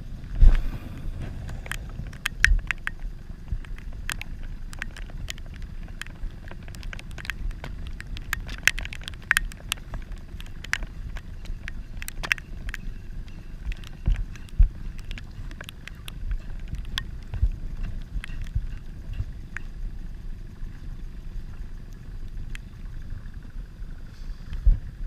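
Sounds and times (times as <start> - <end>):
wind rumble on microphone: 0.0 - 25.0
heavy rain drops ticking: 1.4 - 20.6.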